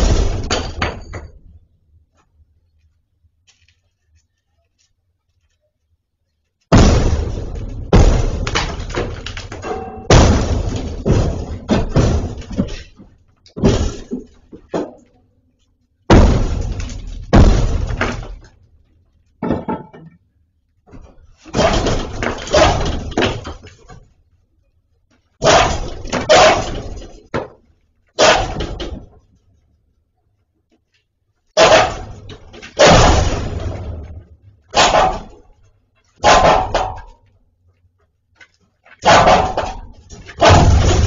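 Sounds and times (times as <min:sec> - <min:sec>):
bricks clattering to floor: 0:08.0 - 0:15.2.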